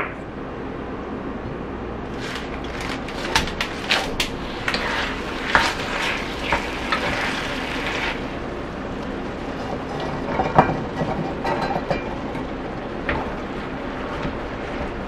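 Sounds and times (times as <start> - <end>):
spatula scraping a pan: 2.1 - 8.4
food sizzling in a pan: 2.2 - 8.4.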